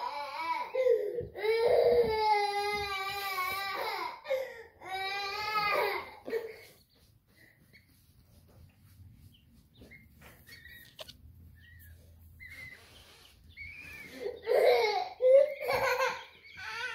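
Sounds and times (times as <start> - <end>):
young child crying or babbling: 0.0 - 6.6, 14.1 - 16.9
baby chicks peeping: 6.6 - 14.6, 15.2 - 16.9.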